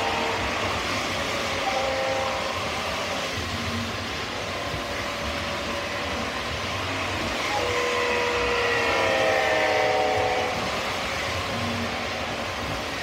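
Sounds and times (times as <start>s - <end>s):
model train horn chord: 0.0s - 3.2s, 7.2s - 11.8s
model train wheels and motors rumbling: 0.0s - 13.0s.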